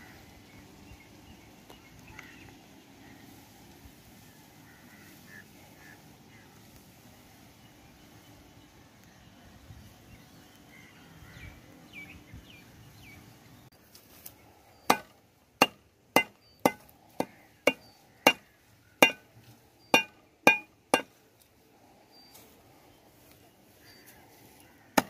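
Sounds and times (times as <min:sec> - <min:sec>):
rustling of grass: 0:00.0 - 0:25.0
sickle chopping grass on wood: 0:13.8 - 0:21.5, 0:24.0 - 0:25.0.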